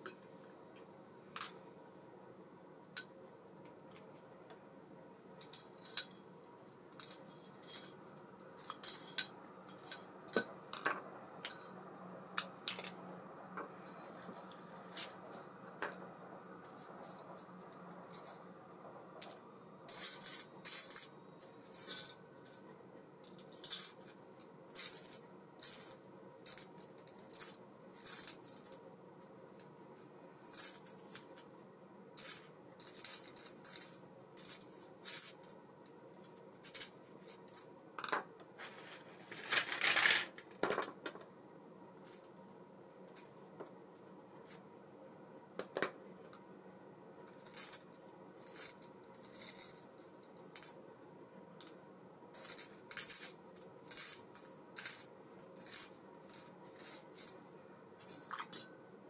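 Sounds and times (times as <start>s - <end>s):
small metal parts clinking: 5.4s - 6.3s, 6.9s - 8.0s, 8.6s - 11.8s, 19.2s - 22.6s, 23.2s - 28.8s, 32.2s - 35.5s, 47.3s - 50.7s, 58.0s - 58.8s
scraping rustle: 38.6s - 40.3s.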